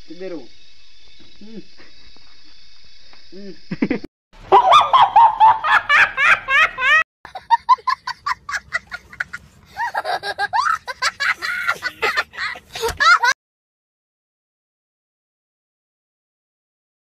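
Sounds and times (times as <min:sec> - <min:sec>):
young boy laughing: 0:03.8 - 0:13.4
cartoon cat laughing: 0:04.5 - 0:13.4.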